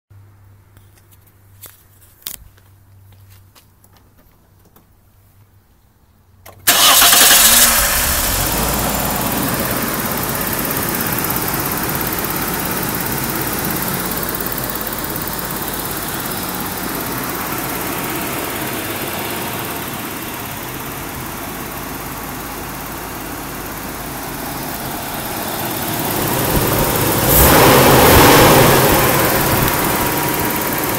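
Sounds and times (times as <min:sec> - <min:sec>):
car engine starting and idling: 0:06.4 - 0:30.9.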